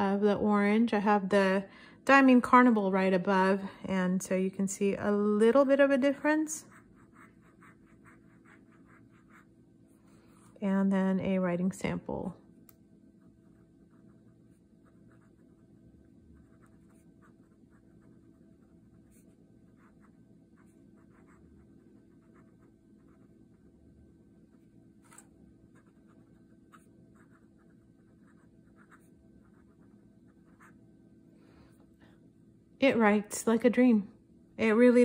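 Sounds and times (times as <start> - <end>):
pen nib scratching on paper: 6.7 - 9.5, 16.4 - 23.6.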